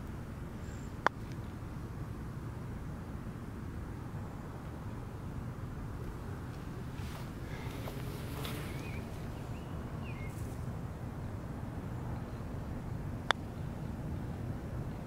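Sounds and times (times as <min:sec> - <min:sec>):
outdoor background noise: 0:00.0 - 0:15.0
bird chirps: 0:08.4 - 0:10.5.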